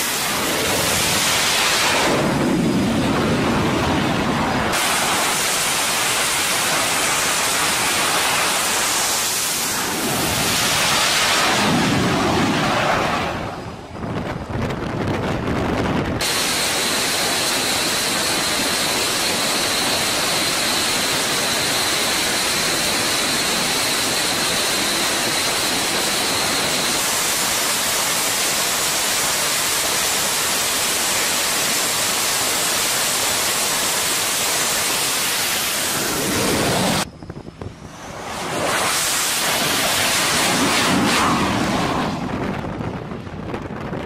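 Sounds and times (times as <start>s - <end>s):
jet engines roaring: 0.0s - 44.0s
thin high whine: 34.0s - 42.3s.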